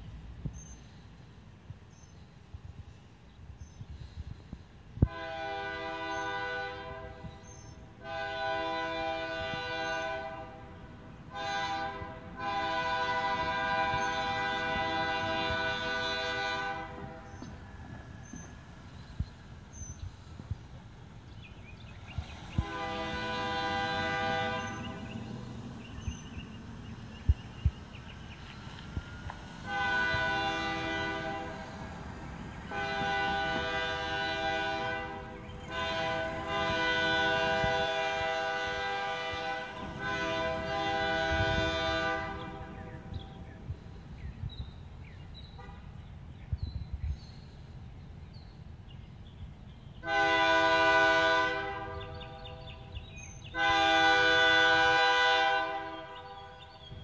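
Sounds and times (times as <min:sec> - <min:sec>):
locomotive air horn blasts: 0:05.0 - 0:17.6, 0:22.5 - 0:25.4, 0:28.8 - 0:32.0, 0:32.6 - 0:43.5, 0:50.0 - 0:56.8.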